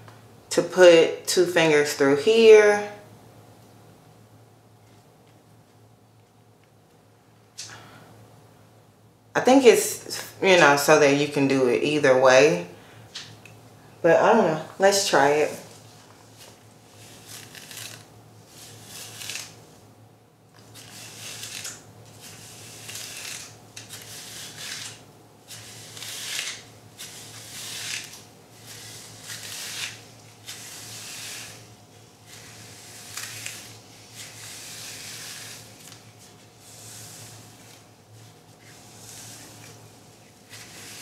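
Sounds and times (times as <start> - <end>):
brush raking through wet hair: 15.6 - 19.8, 20.6 - 41.0.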